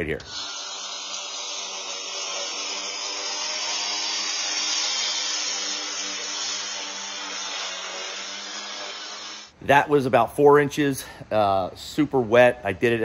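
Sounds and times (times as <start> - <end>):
lawn mower cutting grass: 0.3 - 9.5.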